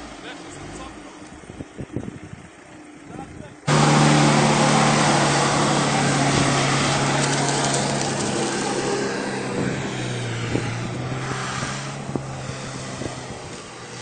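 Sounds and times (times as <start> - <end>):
vehicle engine running hard: 0.0 - 14.0
rushing noise of mud: 3.7 - 14.0.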